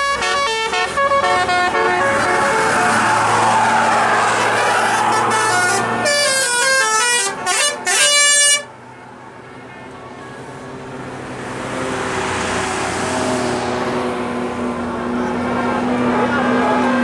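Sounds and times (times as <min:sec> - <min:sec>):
bus horn playing a tune: 0:00.0 - 0:03.4, 0:04.4 - 0:08.9
bus engine humming: 0:00.0 - 0:17.0.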